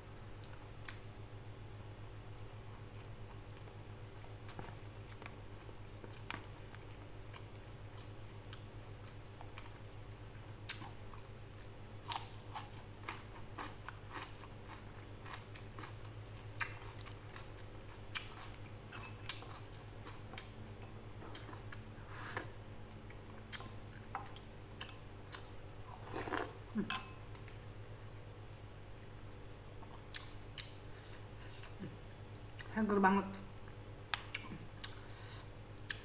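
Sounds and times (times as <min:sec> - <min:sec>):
steady low hum: 0:00.0 - 0:36.0
person chewing: 0:02.9 - 0:09.8, 0:10.6 - 0:26.8, 0:29.8 - 0:32.7, 0:34.1 - 0:36.0.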